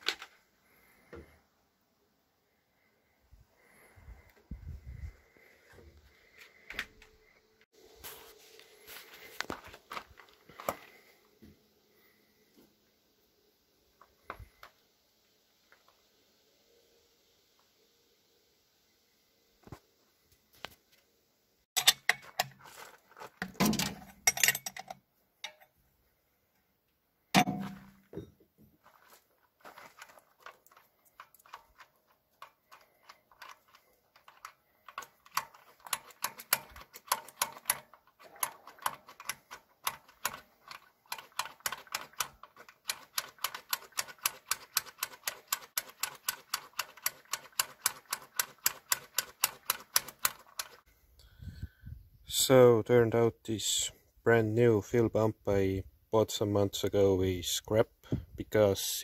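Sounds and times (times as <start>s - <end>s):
fuel pump plunger clicking: 30.0s - 50.8s.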